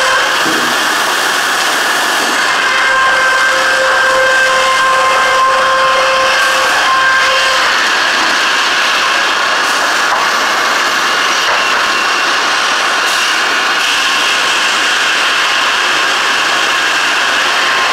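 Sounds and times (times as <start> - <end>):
sawmill machinery din: 0.0 - 17.9.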